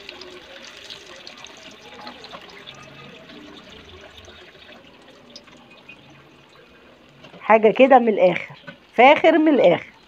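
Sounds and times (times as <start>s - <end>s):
hot oil sizzling and crackling: 0.0s - 7.9s.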